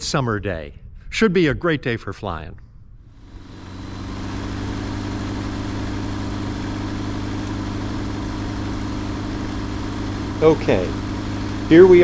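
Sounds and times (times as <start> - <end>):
propeller plane engine running: 2.7 - 12.0.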